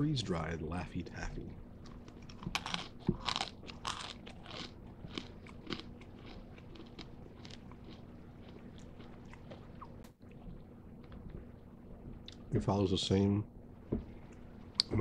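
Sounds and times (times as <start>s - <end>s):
candy crunching and chewing: 1.8s - 10.0s.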